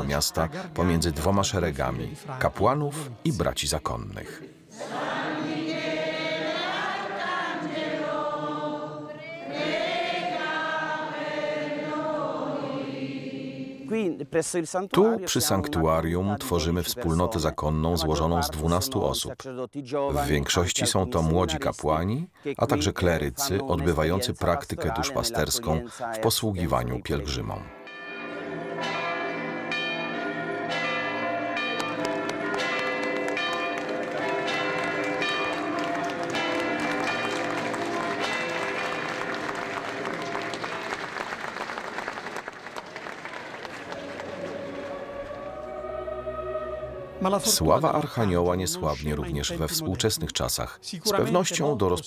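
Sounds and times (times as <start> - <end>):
group singing a hymn: 3.3 - 13.9, 43.8 - 48.9
church bells ringing: 26.7 - 41.0.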